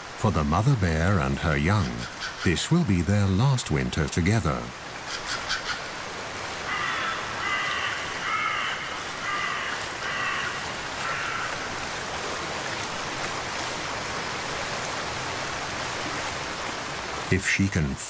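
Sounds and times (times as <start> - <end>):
birds calling harshly: 1.7 - 2.6, 5.0 - 6.0, 6.6 - 11.8.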